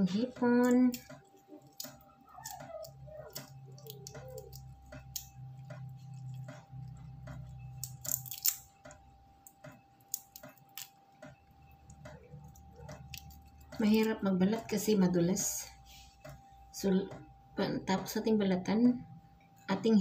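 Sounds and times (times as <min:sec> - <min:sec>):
shrimp shells crackling and squishing: 0:00.3 - 0:14.2.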